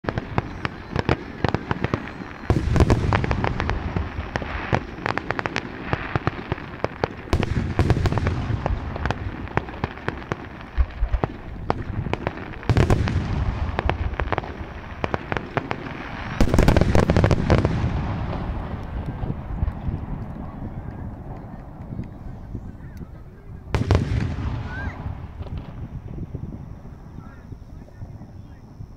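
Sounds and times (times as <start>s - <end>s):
fireworks crackling and popping: 0.0s - 28.9s
firework shell booms: 23.7s - 26.3s.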